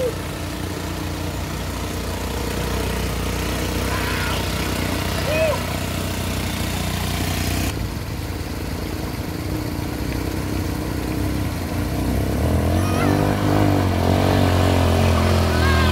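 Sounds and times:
quad bike engine running: 0.0s - 15.9s
water churning around wheels: 0.0s - 15.9s.

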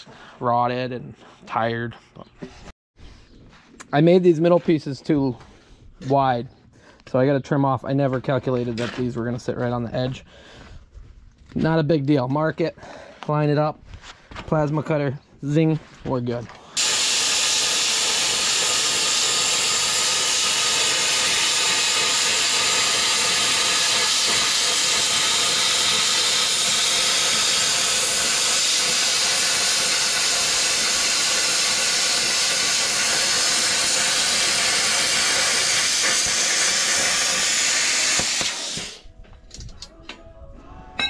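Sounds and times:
plasma cutter hissing: 16.8s - 39.0s.

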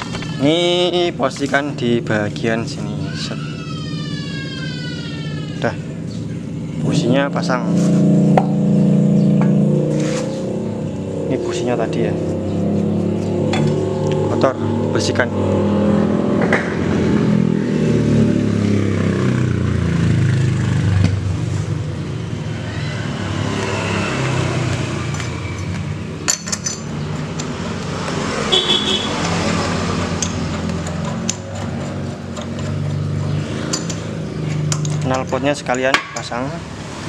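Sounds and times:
vehicles passing: 0.0s - 37.0s.

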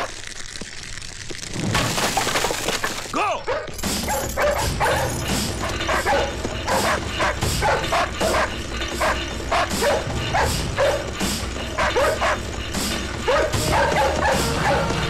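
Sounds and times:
dogs barking rapidly: 3.5s - 12.6s, 13.2s - 15.0s.

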